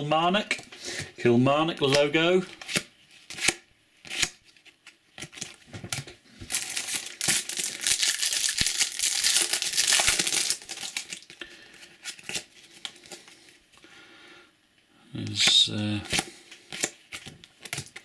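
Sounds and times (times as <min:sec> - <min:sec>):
cards clicking and rustling: 0:01.9 - 0:13.3, 0:15.4 - 0:18.0
foil packet crinkling and tearing: 0:06.4 - 0:11.4.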